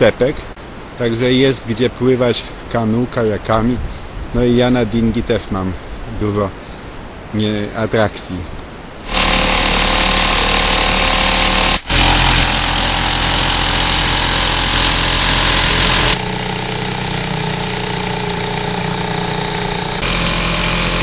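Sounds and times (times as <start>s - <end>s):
rushing wind and water: 3.7s - 5.2s
outboard motor running: 9.0s - 21.0s.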